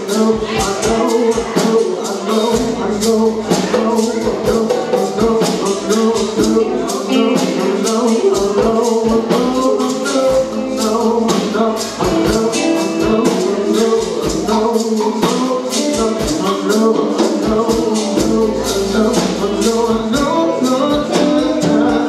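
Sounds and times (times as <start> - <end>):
live band playing rhythm and blues: 0.0 - 22.0.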